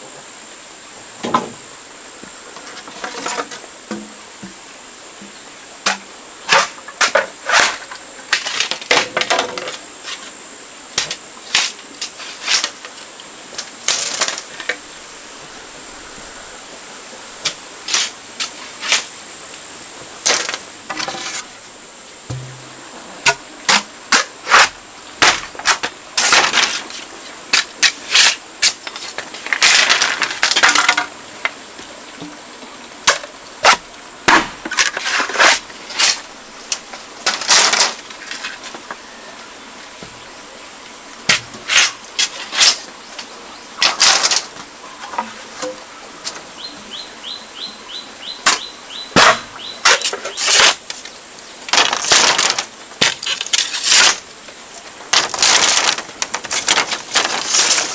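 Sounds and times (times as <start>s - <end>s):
bamboo cracking and tearing: 55.1s - 57.9s.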